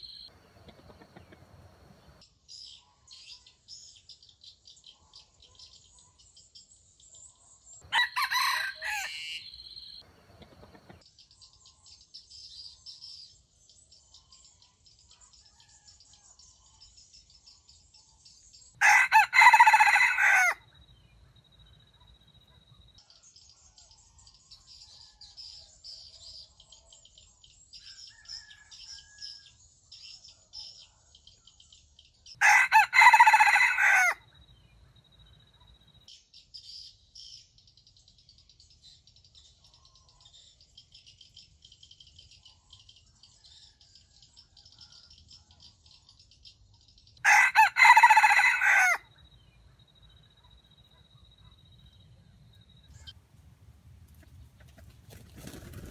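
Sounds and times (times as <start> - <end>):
faint high chirping: 0.0 - 19.0, 20.5 - 32.3, 34.0 - 55.9
rooster crowing: 7.9 - 9.6, 18.8 - 20.6, 32.4 - 34.2, 47.2 - 49.1.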